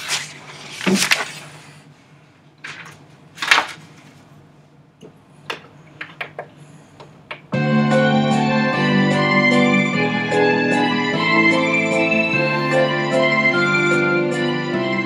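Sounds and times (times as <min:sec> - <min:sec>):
paper rustling on desk: 0:00.0 - 0:01.8, 0:02.6 - 0:04.3.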